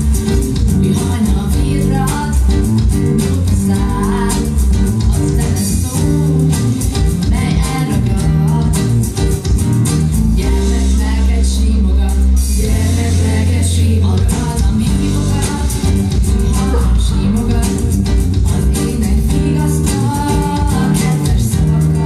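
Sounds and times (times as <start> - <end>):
girls singing: 12.6 - 22.0.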